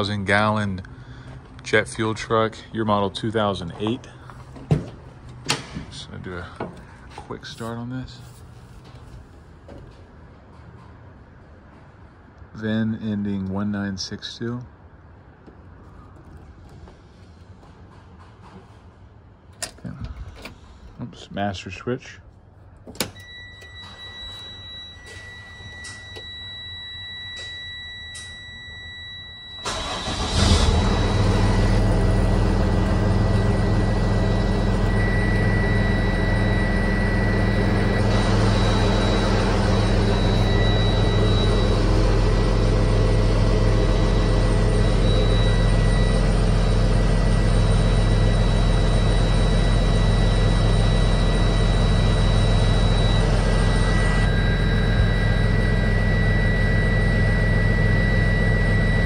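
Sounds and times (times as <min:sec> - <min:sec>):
high warning tone: 0:23.2 - 0:59.0
truck engine cranking and idling: 0:28.8 - 0:59.0.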